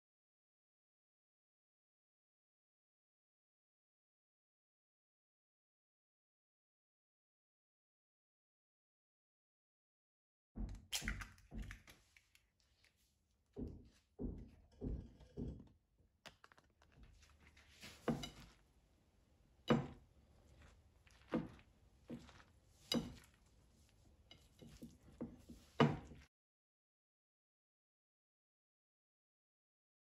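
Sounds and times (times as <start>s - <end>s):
hands mixing vegetables on a plate: 10.7s - 15.7s, 16.3s - 26.3s.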